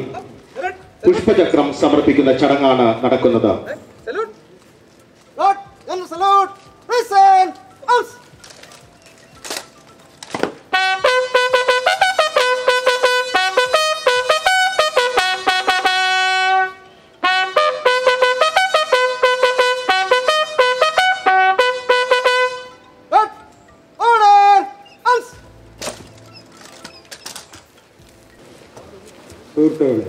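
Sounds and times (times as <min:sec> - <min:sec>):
bugle call: 0:10.7 - 0:27.6.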